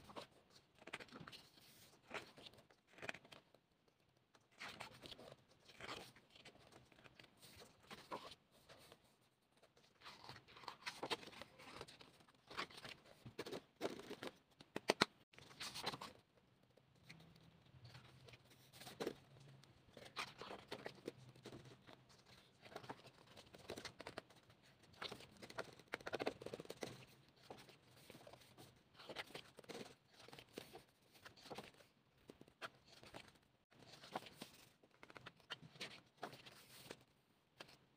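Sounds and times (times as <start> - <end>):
paper pages rustling: 4.6 - 9.1, 17.8 - 37.0, 37.6 - 37.8.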